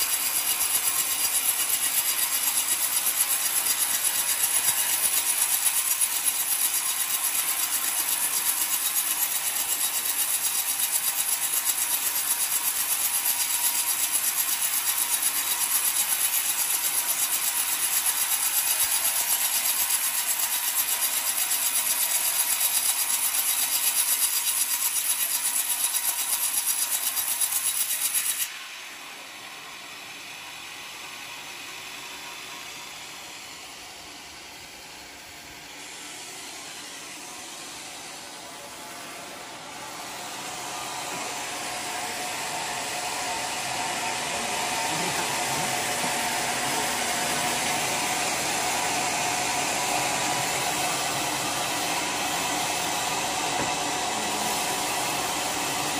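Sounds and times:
saw blade cutting log: 0.0 - 28.6, 40.0 - 55.9.

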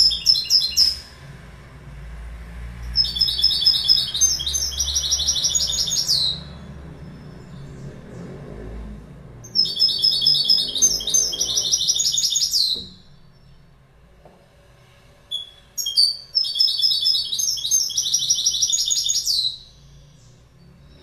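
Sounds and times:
goldfinch singing trills: 0.0 - 1.1, 2.9 - 7.7, 9.4 - 13.6, 15.3 - 20.4.

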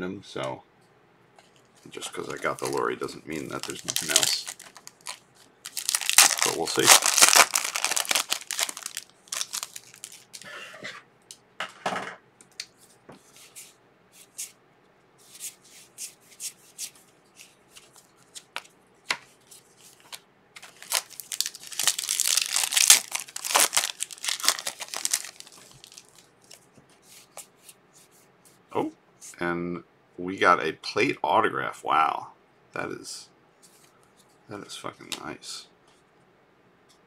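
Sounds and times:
foil wrapper crinkling: 2.1 - 10.5, 19.9 - 26.6.

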